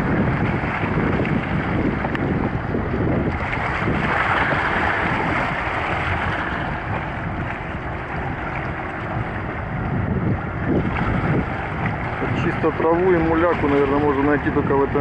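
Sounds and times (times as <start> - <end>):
wind buffeting microphone: 0.0 - 15.0
small waves washing on rocks: 3.3 - 7.6.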